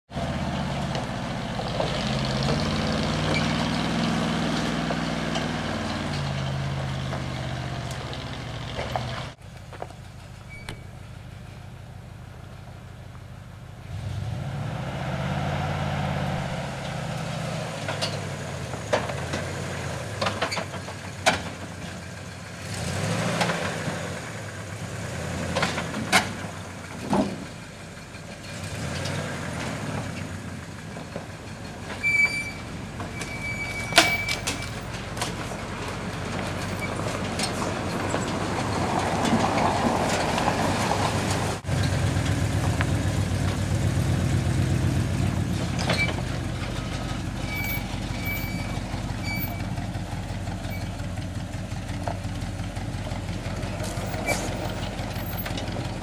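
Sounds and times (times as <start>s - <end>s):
truck knocks and clanks: 0.1s - 14.6s, 16.2s - 56.0s
truck engine under load: 0.1s - 56.0s.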